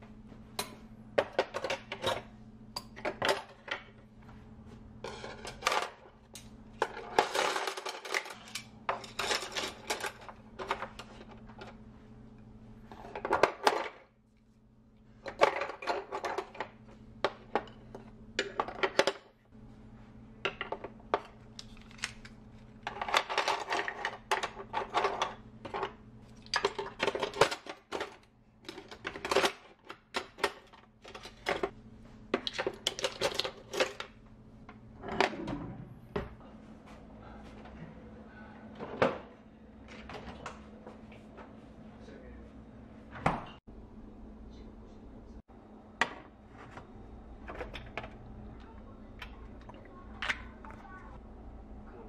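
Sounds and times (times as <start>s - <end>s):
cutlery and utensils clinking: 5.0s - 10.8s
low hum: 34.0s - 52.0s.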